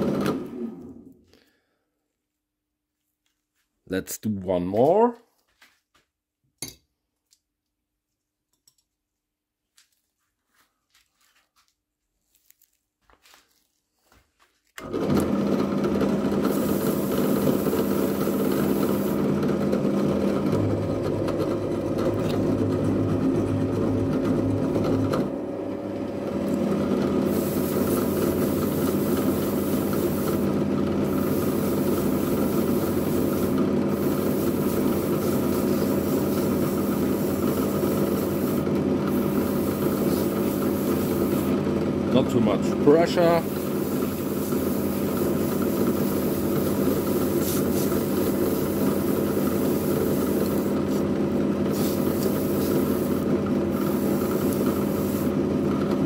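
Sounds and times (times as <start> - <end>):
drill press running: 0.0 - 1.1, 14.8 - 56.0.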